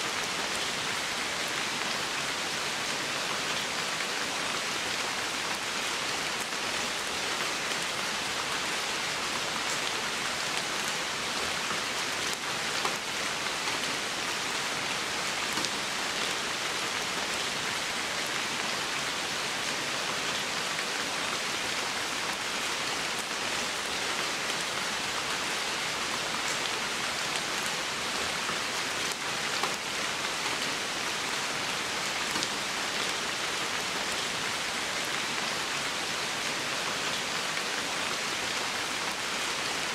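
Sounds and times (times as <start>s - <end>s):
rain falling on leaves: 0.0s - 39.9s.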